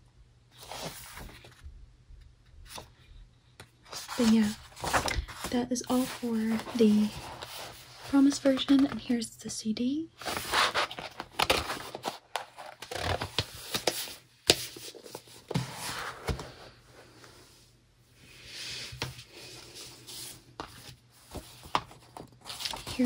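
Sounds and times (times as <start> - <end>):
paper and card rustling: 0.6 - 1.6, 3.6 - 9.2, 10.2 - 16.8, 18.8 - 23.0.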